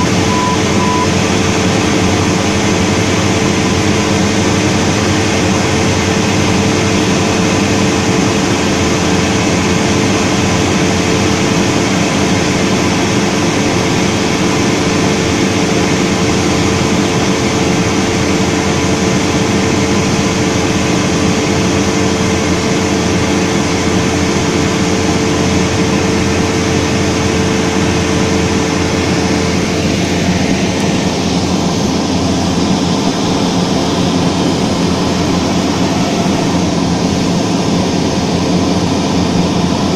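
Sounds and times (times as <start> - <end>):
aircraft engine droning: 0.0 - 39.9
rushing air noise: 0.0 - 39.9.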